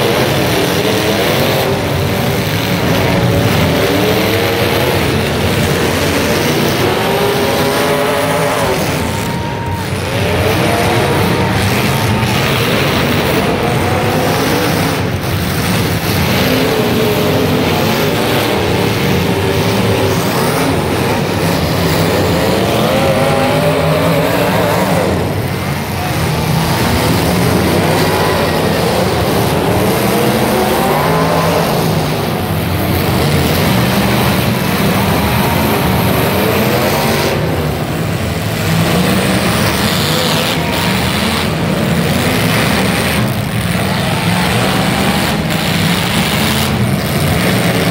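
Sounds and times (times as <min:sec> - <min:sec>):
car engines revving: 0:00.0 - 0:47.9.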